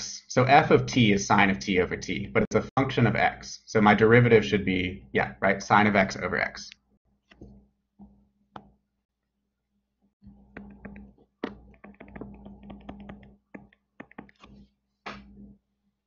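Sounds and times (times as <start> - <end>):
stylus tapping on tablet: 10.3 - 15.3.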